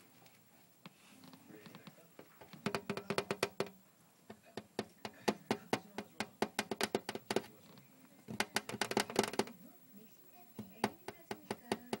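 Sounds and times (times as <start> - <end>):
hamster clicking: 4.7 - 7.5, 8.3 - 9.6, 10.6 - 12.0.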